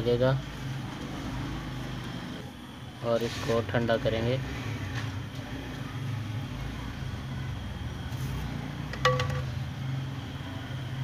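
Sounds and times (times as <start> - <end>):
metallic clink: 9.0 - 9.6.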